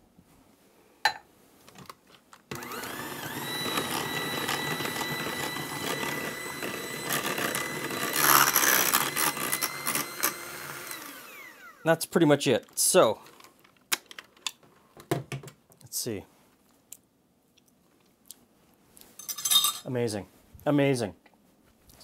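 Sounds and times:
electric hand mixer whining: 2.5s - 11.8s.

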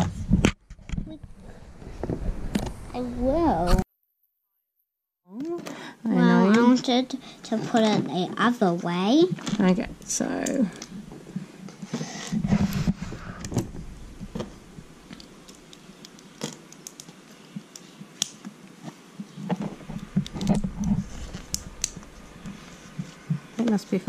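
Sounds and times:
plastic bricks clicking together: 15.2s - 18.4s.

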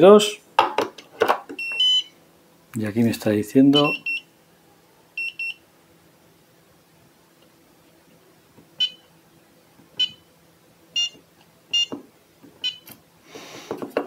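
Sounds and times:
battery charger beeping: 11.0s - 12.0s.

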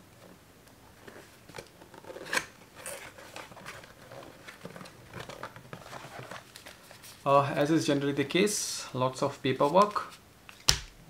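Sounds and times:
cardboard scrape: 1.0s - 7.2s.

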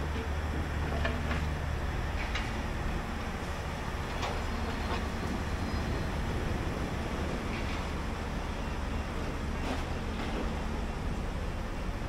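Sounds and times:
excavator diesel engine running: 0.0s - 12.0s.

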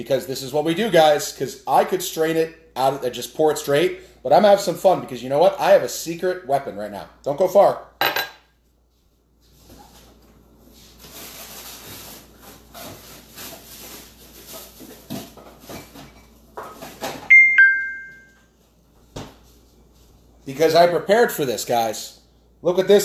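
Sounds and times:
kitchen items clattering: 11.0s - 17.3s
two-note ding-dong chime: 17.3s - 18.4s.

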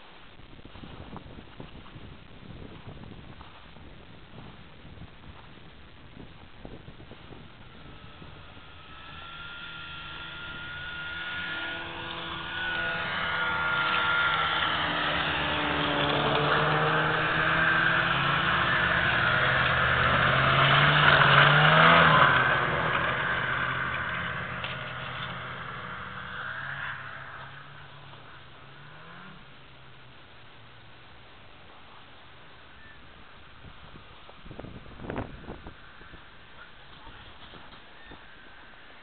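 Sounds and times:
snowmobile engine passing by: 6.9s - 32.1s.

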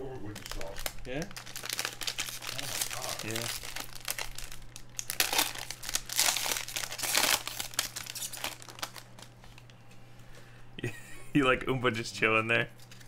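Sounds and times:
wrappers tearing and crumpling: 0.2s - 9.7s.

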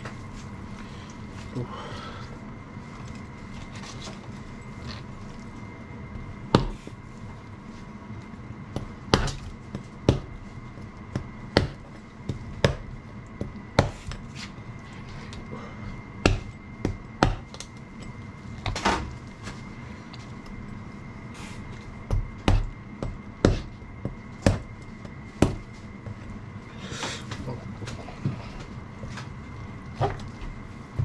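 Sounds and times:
knife chopping on cutting board: 8.8s - 9.4s, 11.2s - 14.2s, 16.2s - 17.5s, 22.1s - 25.6s.

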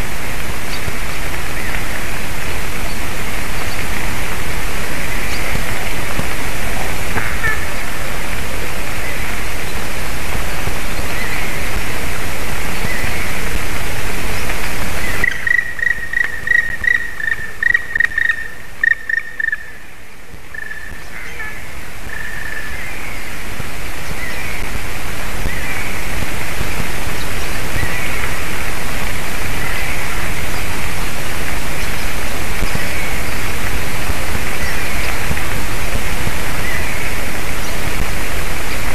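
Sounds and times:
steady hiss: 0.0s - 38.9s
woodpecker ringing calls: 15.2s - 19.8s.

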